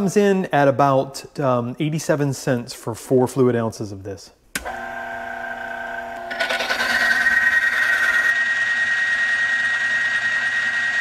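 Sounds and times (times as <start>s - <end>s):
motor whirring: 4.6s - 11.0s
metal rubbing and grinding: 6.3s - 8.3s.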